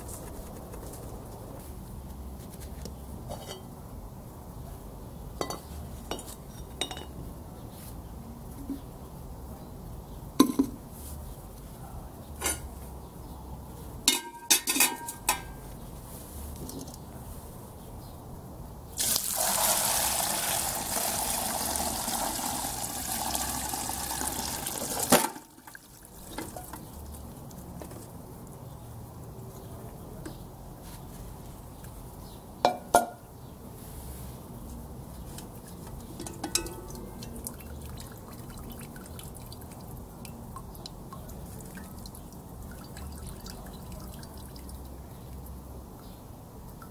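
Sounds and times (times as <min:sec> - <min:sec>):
liquid pouring and splashing: 0:19.0 - 0:26.7, 0:36.5 - 0:45.0.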